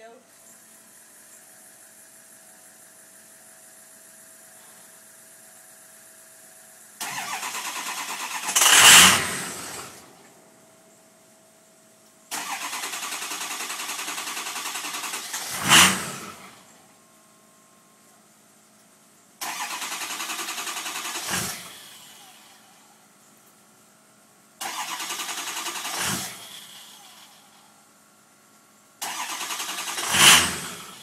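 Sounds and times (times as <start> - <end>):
diesel engine cranking: 7.0 - 10.2, 12.3 - 16.7, 19.4 - 22.5, 24.6 - 27.5, 29.0 - 31.0.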